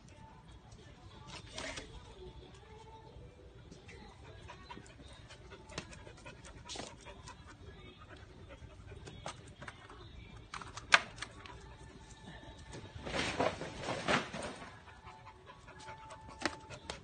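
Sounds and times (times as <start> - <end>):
dog panting: 4.1 - 9.5, 14.8 - 17.0.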